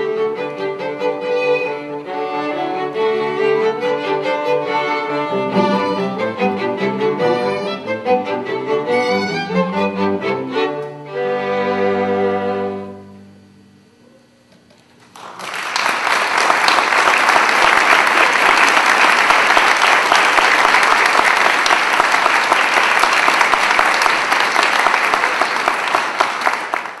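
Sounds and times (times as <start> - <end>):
audience applauding: 15.0 - 27.0.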